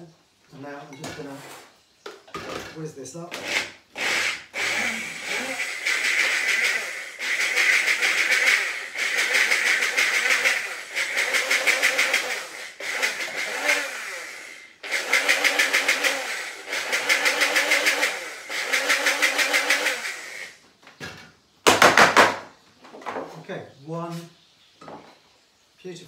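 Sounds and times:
electric grinder whirring: 3.3 - 20.6.

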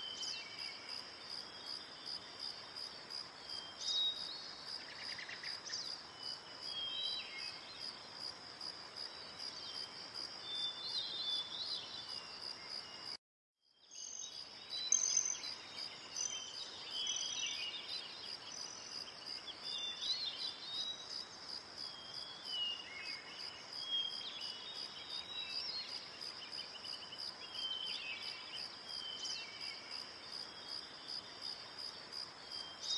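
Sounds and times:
insects chirping: 13.9 - 32.9.

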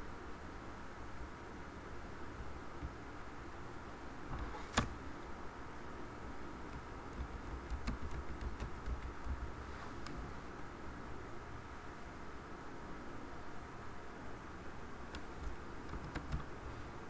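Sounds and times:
low room hum: 0.0 - 17.0
keyboard key clicks: 6.8 - 9.4, 15.1 - 16.5.

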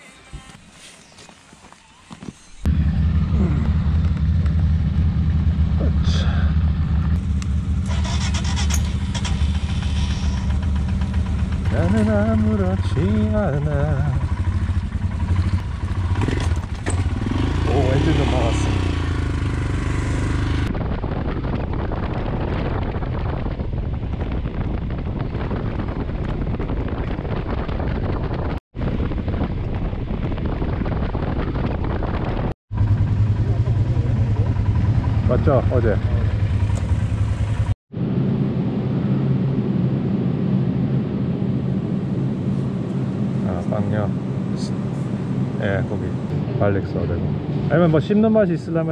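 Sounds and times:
motorcycle engine running: 2.6 - 37.8
wind buffeting microphone: 10.5 - 48.9.

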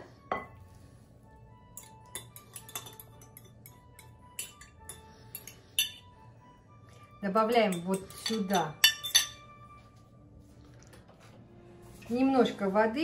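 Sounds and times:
utensil clinking against bowl: 1.8 - 6.1, 7.4 - 9.6.

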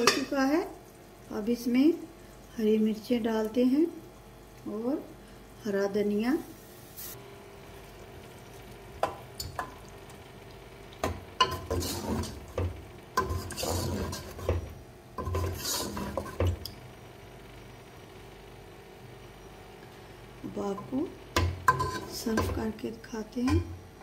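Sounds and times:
ladle stirring thick curry: 11.4 - 16.6.

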